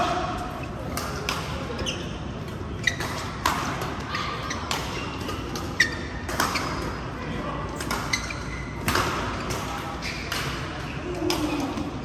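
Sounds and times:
racket hitting shuttlecock: 0:02.8 - 0:07.0, 0:07.8 - 0:11.9.

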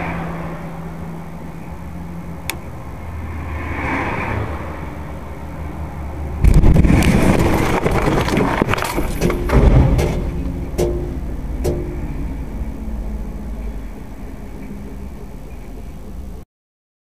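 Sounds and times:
vehicle engine drone: 0:00.0 - 0:16.4
loud noisy rush with clattering: 0:06.4 - 0:12.2.

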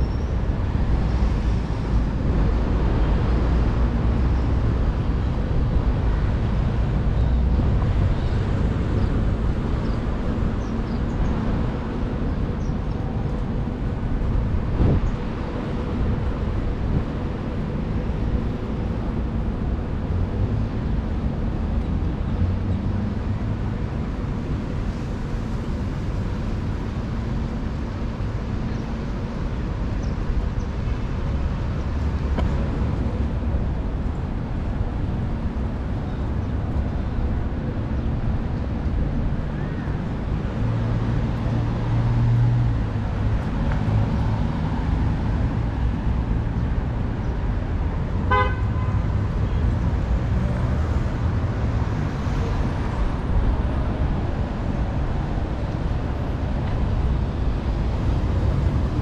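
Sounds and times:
road traffic rumble: 0:00.0 - 0:59.0
car horn beep: 0:48.3 - 0:49.0.

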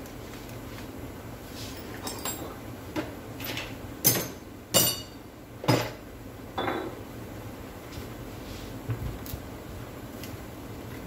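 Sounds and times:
metal tools clinking: 0:01.9 - 0:02.6.

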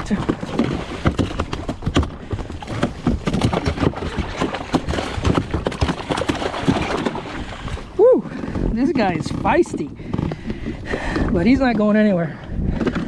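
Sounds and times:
fish thumping against plastic hull: 0:00.0 - 0:07.9.

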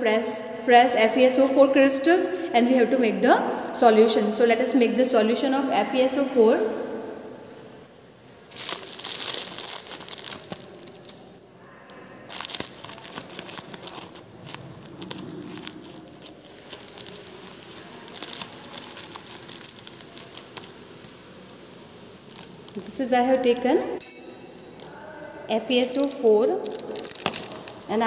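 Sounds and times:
plastic wrapping crinkling: 0:08.2 - 0:28.0.

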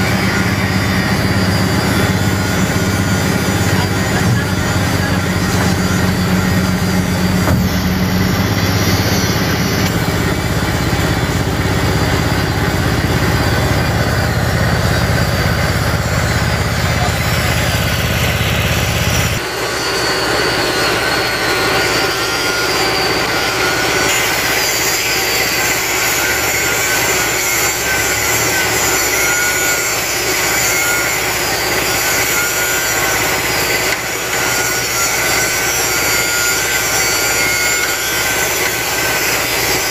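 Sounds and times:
diesel engine rumble: 0:00.0 - 0:24.5
wavering hydraulic whine: 0:00.0 - 0:39.9.

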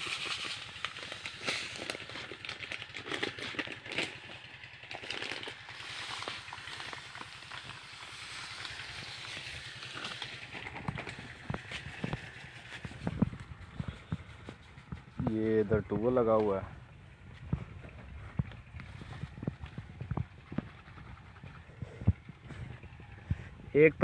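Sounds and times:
plastic and foil crinkling: 0:00.0 - 0:15.0
small engine chugging: 0:00.0 - 0:24.0.

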